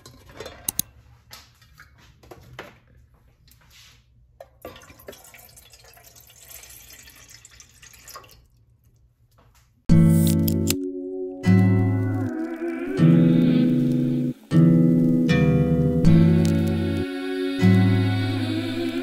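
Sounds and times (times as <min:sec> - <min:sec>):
water pouring into metal saucepan: 0:04.7 - 0:08.6.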